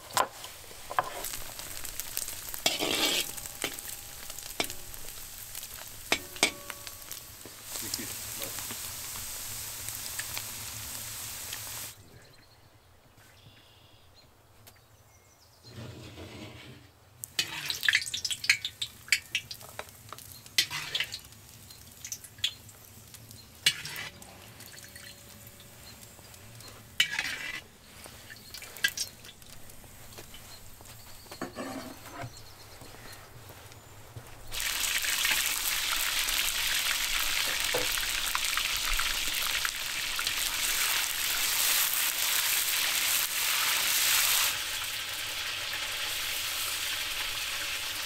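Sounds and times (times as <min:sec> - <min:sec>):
fat sizzling in hot oil: 0:00.0 - 0:12.0, 0:17.2 - 0:32.2, 0:34.5 - 0:48.0
metal skimmer clinking and scraping: 0:02.7 - 0:05.0, 0:06.1 - 0:07.2, 0:31.4 - 0:32.3.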